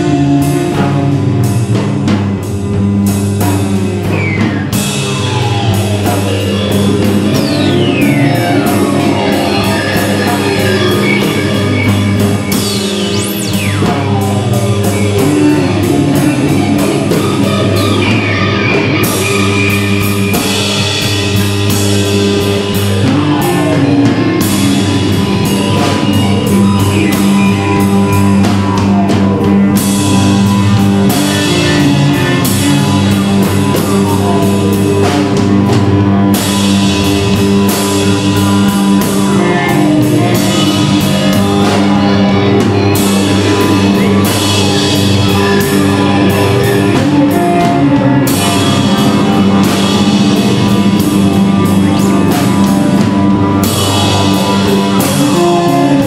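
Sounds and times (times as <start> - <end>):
bass line: 0.0 - 56.0
drum kit played busily: 0.0 - 56.0
electric guitar: 0.0 - 56.0
electronic loops: 4.1 - 28.6.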